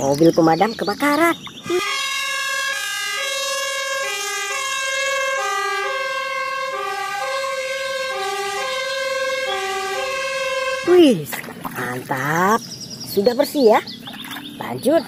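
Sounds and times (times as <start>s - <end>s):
fire engine two-tone siren: 1.1s - 11.3s.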